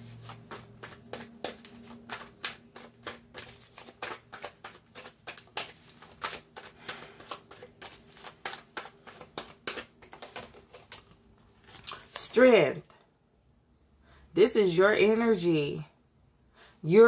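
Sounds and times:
cards being shuffled: 0:00.0 - 0:12.3.

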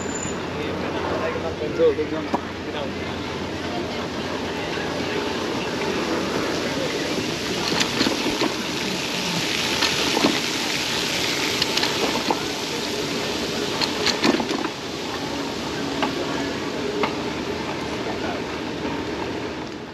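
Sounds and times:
tyres rolling on pavement: 0:00.0 - 0:19.9
bike clicks and rattles: 0:07.6 - 0:08.6, 0:09.7 - 0:10.5, 0:11.4 - 0:12.4, 0:13.7 - 0:14.8.

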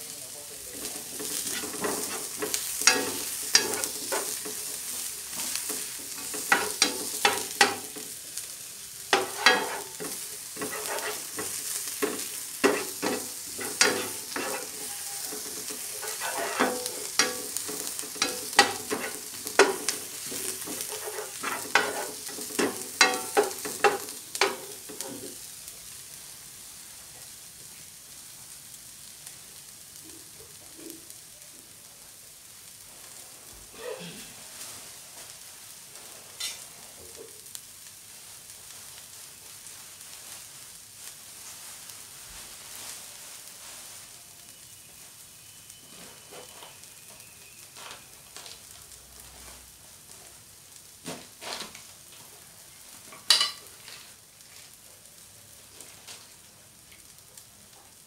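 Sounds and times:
aromatics sizzling in hot oil: 0:00.0 - 0:58.0
wooden spatula scraping a pan: 0:00.8 - 0:25.5, 0:34.5 - 0:37.2.

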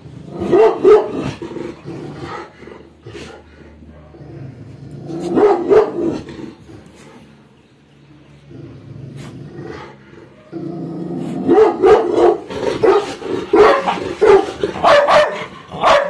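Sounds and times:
dog barking: 0:00.4 - 0:01.4, 0:05.3 - 0:06.2, 0:11.4 - 0:16.0
dog growling: 0:01.2 - 0:07.3, 0:08.4 - 0:11.5, 0:12.1 - 0:15.9.

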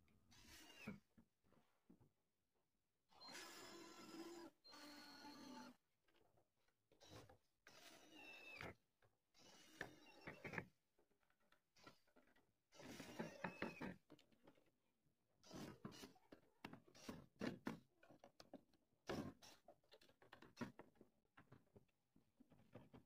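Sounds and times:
cordless drill boring into wood: 0:00.3 - 0:01.0, 0:03.1 - 0:05.8, 0:07.0 - 0:08.7, 0:09.4 - 0:10.6, 0:12.7 - 0:13.9, 0:15.4 - 0:16.2.

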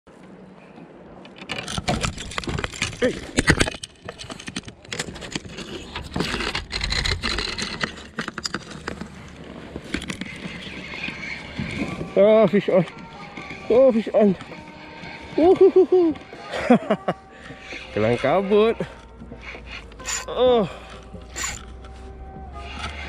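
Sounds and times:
rod and reel knocking: 0:01.6 - 0:21.9
reel drag clicking: 0:17.0 - 0:21.9, 0:22.6 - 0:23.0.

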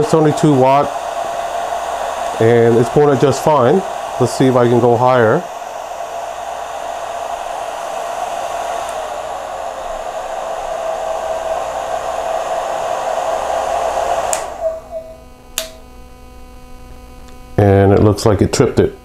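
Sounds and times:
hair dryer running: 0:00.0 - 0:15.9
power station click: 0:14.3 - 0:15.9.

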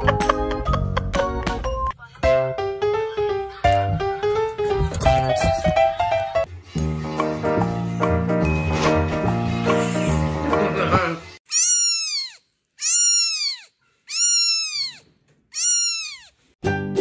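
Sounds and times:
background music: 0:00.0 - 0:11.3, 0:16.6 - 0:17.0
kitten mewing: 0:11.5 - 0:16.3.

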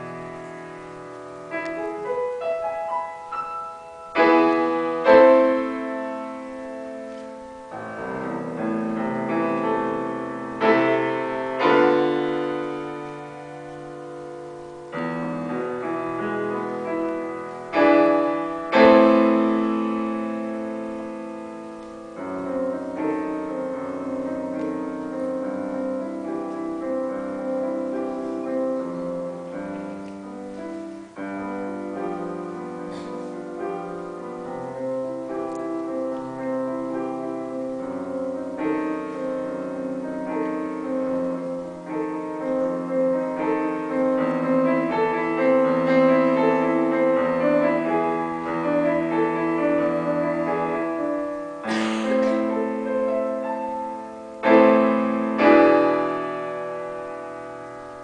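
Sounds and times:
grand piano chords: 0:00.0 - 0:58.0.

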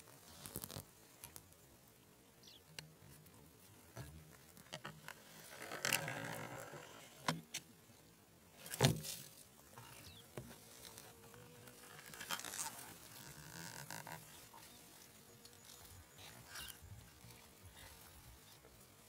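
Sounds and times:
rustling: 0:00.0 - 0:01.6, 0:08.6 - 0:19.0.

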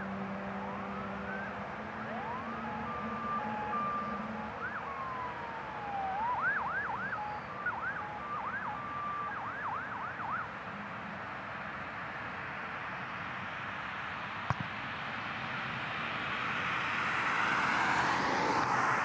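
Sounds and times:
emergency vehicle siren: 0:00.0 - 0:10.7, 0:15.9 - 0:19.0.

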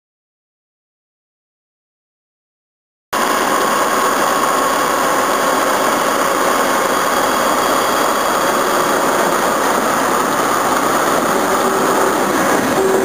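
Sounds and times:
high whine: 0:03.2 - 0:13.0
locomotive diesel engine running: 0:03.2 - 0:13.0.

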